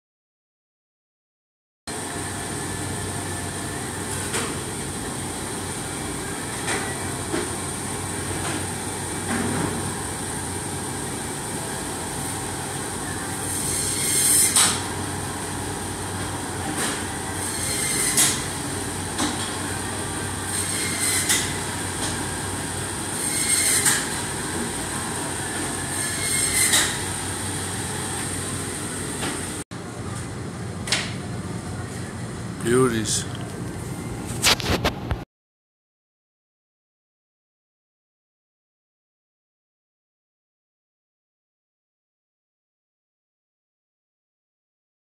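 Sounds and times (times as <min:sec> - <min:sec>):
saw blade screeching through bone: 0:13.5 - 0:14.8, 0:17.4 - 0:18.4, 0:20.6 - 0:21.5, 0:23.2 - 0:24.0, 0:26.0 - 0:27.0.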